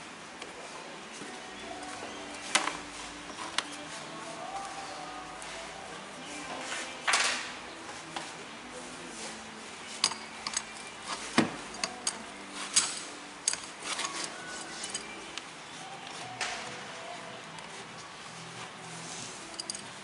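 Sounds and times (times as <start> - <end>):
wrench clinking on metal clamps: 9.9 - 15.2, 19.4 - 20.0.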